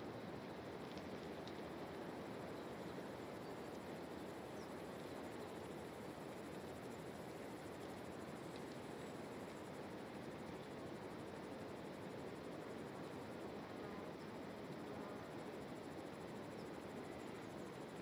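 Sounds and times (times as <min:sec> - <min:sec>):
faint high clicks: 0:08.5 - 0:08.9.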